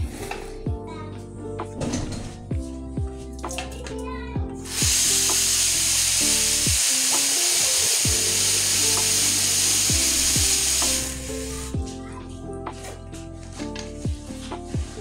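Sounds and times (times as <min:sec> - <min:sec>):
water running from a tap: 0:04.6 - 0:11.8.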